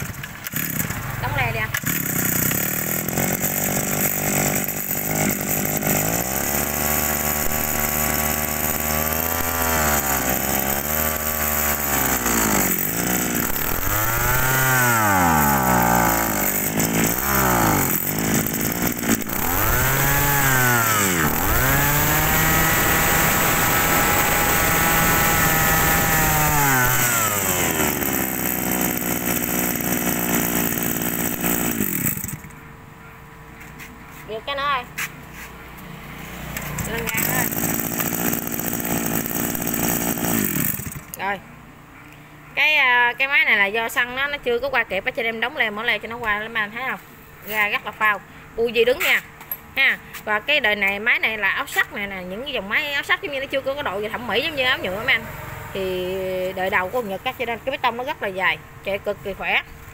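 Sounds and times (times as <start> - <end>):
brush-cutter engine revving: 0.0 - 32.6, 36.1 - 41.3.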